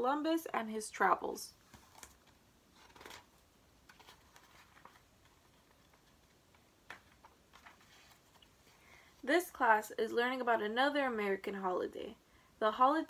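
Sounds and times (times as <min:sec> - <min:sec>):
paper rustling: 0:01.7 - 0:08.8.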